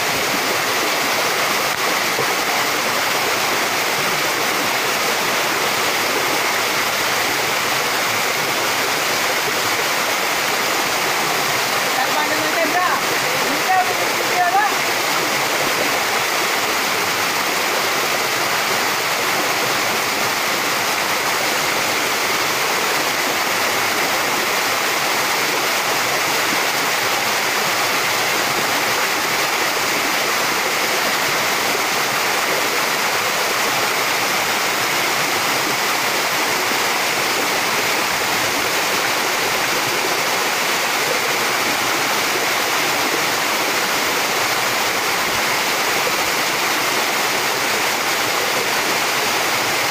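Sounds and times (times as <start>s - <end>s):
waterfall rushing into pool: 0.0s - 49.9s.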